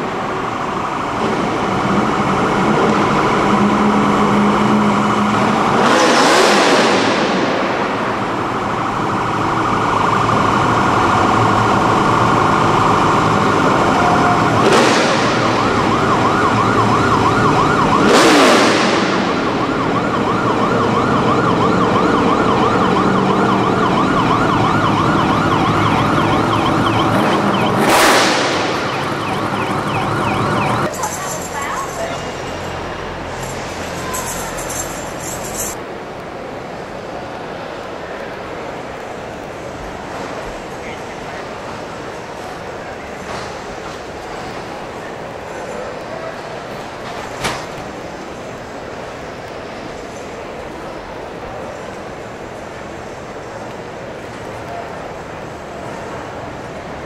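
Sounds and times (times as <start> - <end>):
loud rushes of noise: 0.0 - 57.0
vehicles driving past: 0.0 - 57.0
siren wailing and warbling: 8.3 - 35.8.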